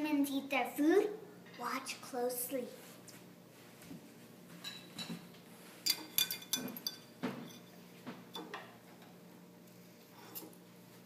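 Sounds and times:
metal fork clinking on plate: 5.9s - 7.7s.

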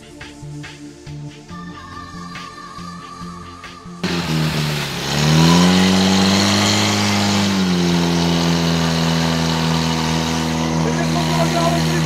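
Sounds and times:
music: 0.0s - 5.0s
fire pump engine revving: 4.0s - 12.0s.

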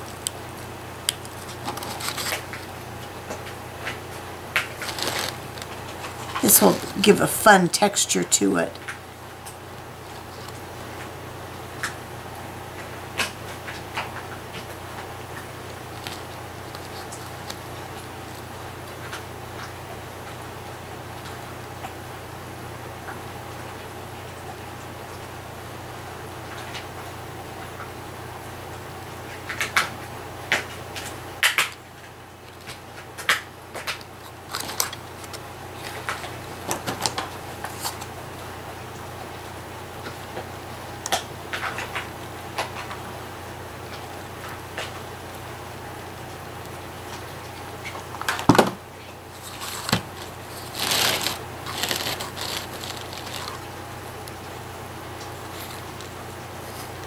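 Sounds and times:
paper clicks and rustles: 0.0s - 7.2s, 13.2s - 19.2s, 32.4s - 38.2s, 49.3s - 54.6s, 55.2s - 57.0s
faint steady hum: 0.0s - 57.0s.

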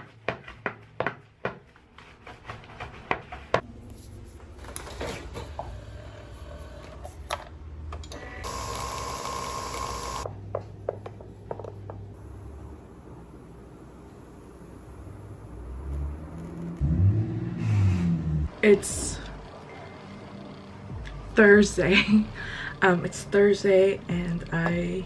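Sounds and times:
milk frother whirring: 8.2s - 10.3s.

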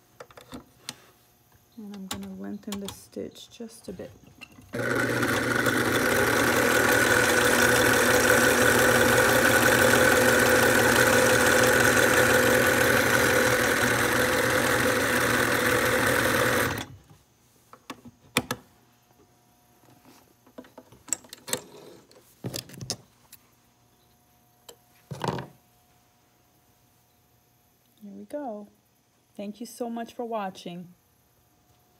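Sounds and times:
sewing machine running: 4.7s - 16.9s.

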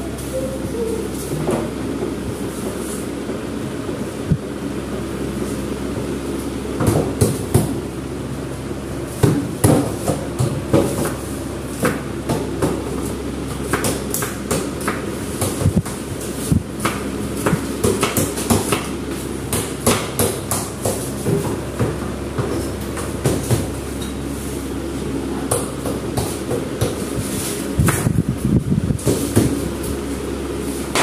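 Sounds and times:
steady background hum: 0.0s - 31.0s.

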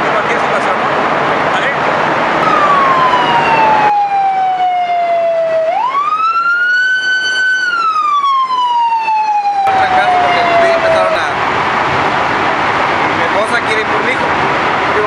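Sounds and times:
siren wailing: 2.4s - 11.4s.

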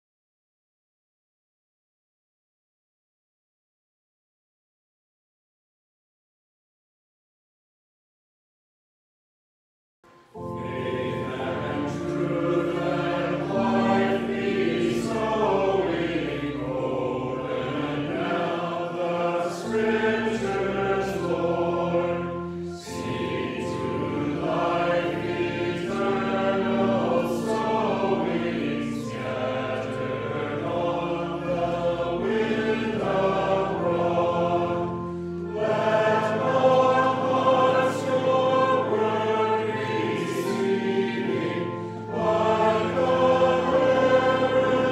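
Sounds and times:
choir singing a hymn: 10.3s - 44.9s
sustained instrumental accompaniment: 10.3s - 44.9s.

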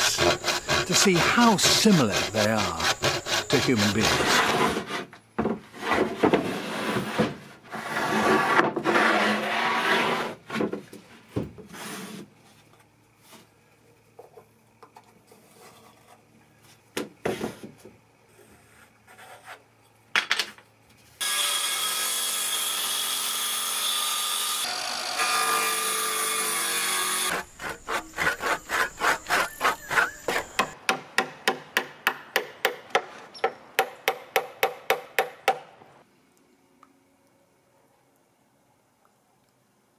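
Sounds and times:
rasping strokes on wood: 0.0s - 5.0s, 26.6s - 30.8s.

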